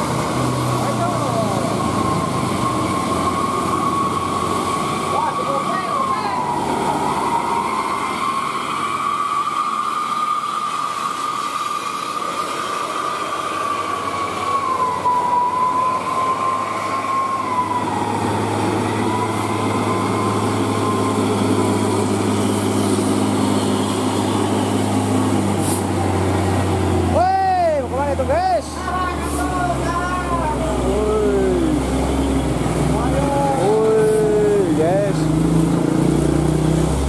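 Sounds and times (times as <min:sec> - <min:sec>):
high wavering whine: 0:00.0 - 0:25.4
diesel truck engine labouring: 0:00.0 - 0:37.0.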